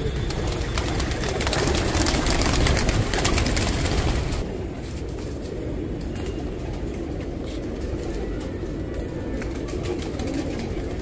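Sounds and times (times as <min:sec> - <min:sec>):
pigeons cooing: 0:07.7 - 0:11.0.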